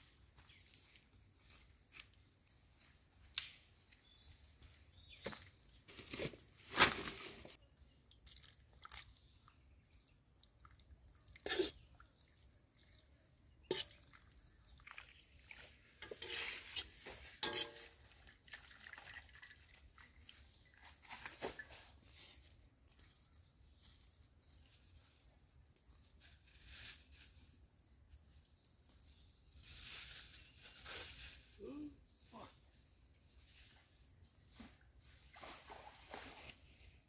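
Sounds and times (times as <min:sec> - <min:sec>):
footsteps on dry leaves: 0:00.1 - 0:07.6
handling rustles and knocks: 0:16.0 - 0:18.1.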